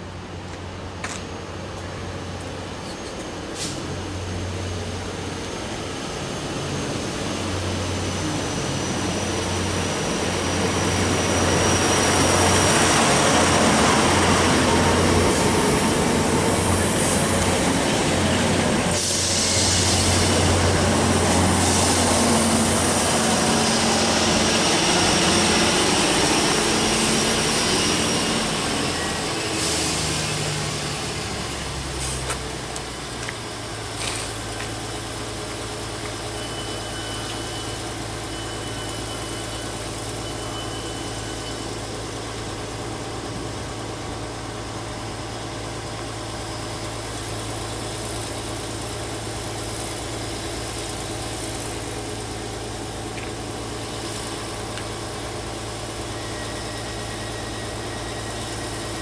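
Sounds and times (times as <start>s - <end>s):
train engines humming: 0.0s - 59.0s
high brake squeal: 18.3s - 32.3s, 34.9s - 42.4s, 53.8s - 59.0s.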